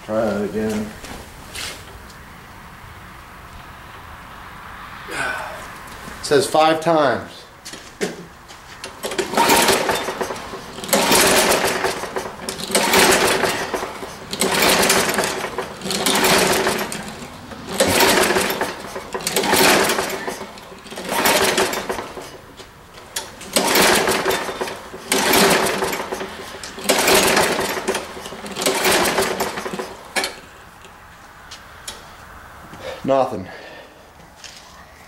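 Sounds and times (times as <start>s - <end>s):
engine turning over: 8.8s - 30.9s
recoil starter pulls: 8.8s - 31.0s.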